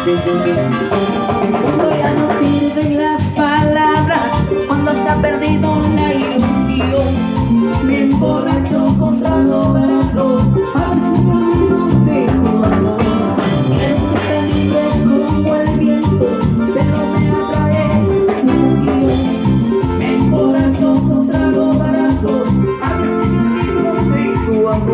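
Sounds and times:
drums: 0:00.0 - 0:24.9
electric bass: 0:00.0 - 0:24.9
hand percussion: 0:00.0 - 0:24.9
keyboards: 0:00.0 - 0:24.9
live band playing latin dance music: 0:00.0 - 0:24.9.

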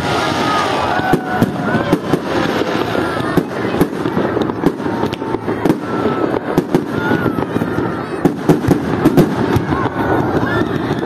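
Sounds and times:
fireworks bangs: 0:00.0 - 0:11.0.

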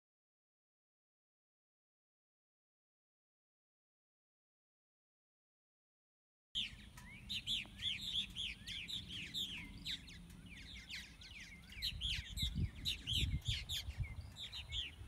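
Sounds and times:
birds chirping: 0:06.6 - 0:15.0.

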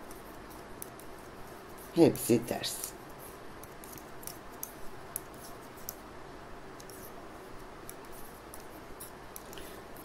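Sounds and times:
soft steady hiss: 0:00.0 - 0:10.0
knitting needles clicking: 0:03.6 - 0:06.0, 0:06.8 - 0:07.0.

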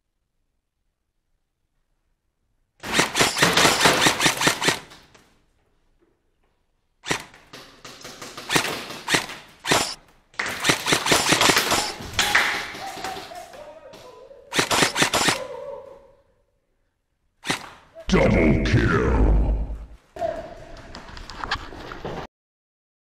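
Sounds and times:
airsoft rifle full-auto bursts: 0:02.8 - 0:05.0, 0:07.0 - 0:07.4, 0:08.4 - 0:12.0, 0:14.5 - 0:15.4, 0:17.4 - 0:17.8.

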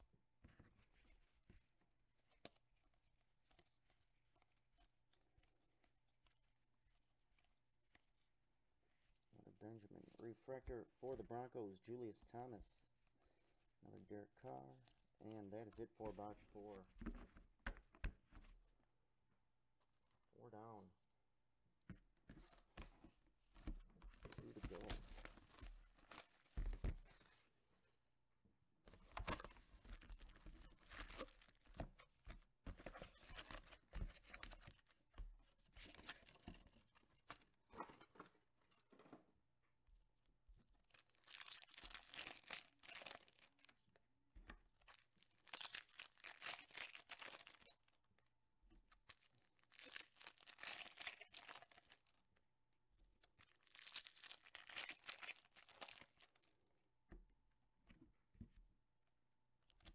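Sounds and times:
foil packs crinkling: 0:29.9 - 0:31.8, 0:40.9 - 0:43.7, 0:44.9 - 0:47.8, 0:49.1 - 0:52.1, 0:53.4 - 0:56.4
wrapping tearing: 0:40.9 - 0:43.8, 0:44.8 - 0:47.9, 0:49.1 - 0:52.1, 0:53.4 - 0:56.4.

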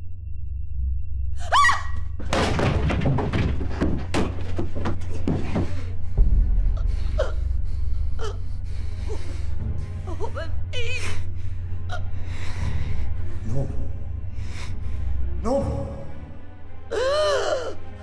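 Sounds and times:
thumps and knocks: 0:02.2 - 0:07.1
heavy low thud: 0:02.2 - 0:09.1
low steady drone: 0:05.8 - 0:18.0.

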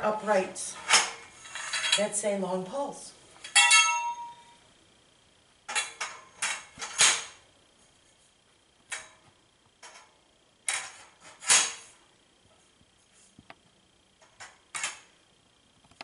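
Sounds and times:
metal poles knocking: 0:03.5 - 0:04.4
metal pole ringing: 0:03.5 - 0:04.6.

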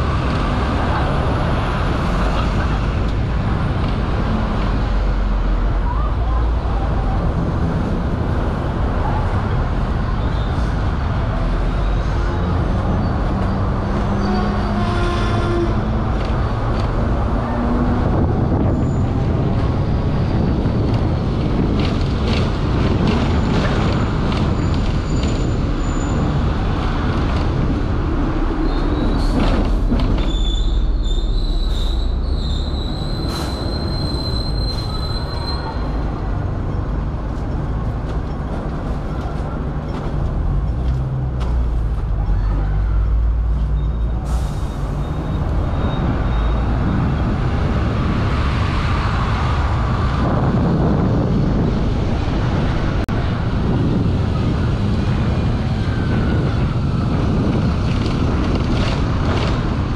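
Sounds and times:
tram rumbling on rails: 0:00.0 - 0:59.9
wheel squeal: 0:28.6 - 0:36.2, 0:43.5 - 0:46.8.

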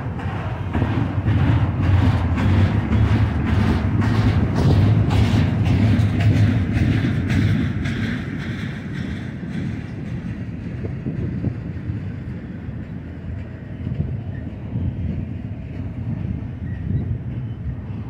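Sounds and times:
train wheels rumbling on rails: 0:00.0 - 0:18.0
rattling clatter: 0:00.2 - 0:11.3.

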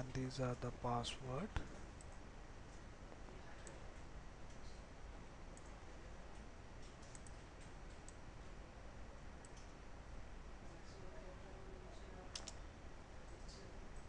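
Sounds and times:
computer mouse clicking: 0:06.8 - 0:08.2, 0:09.4 - 0:09.7, 0:12.3 - 0:12.6.

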